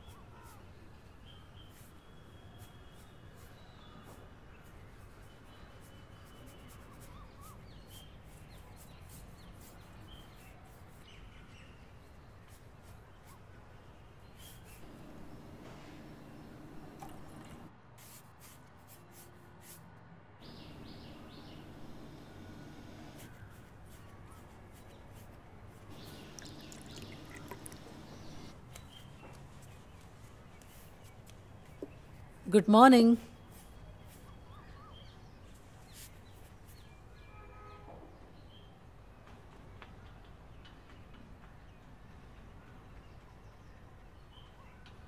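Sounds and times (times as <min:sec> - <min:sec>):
faint bird chirps: 0:00.0 - 0:11.9, 0:20.4 - 0:25.0, 0:25.9 - 0:29.2, 0:33.4 - 0:37.8
low background hum: 0:14.6 - 0:17.8, 0:20.4 - 0:30.8
tea trickling into cups: 0:14.8 - 0:17.7, 0:20.4 - 0:23.2, 0:25.9 - 0:28.6.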